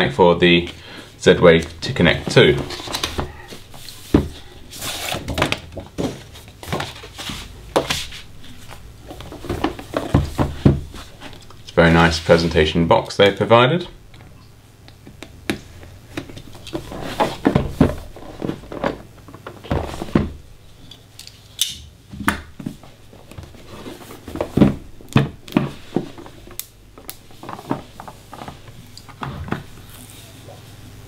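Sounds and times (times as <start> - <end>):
cardboard scraping and rustling: 2.0 - 12.4, 16.4 - 20.4, 22.6 - 26.6, 27.3 - 30.4.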